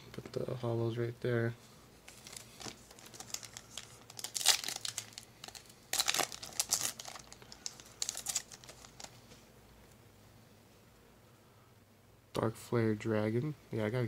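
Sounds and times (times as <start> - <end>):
foil wrapper crinkling and tearing: 2.1 - 9.2.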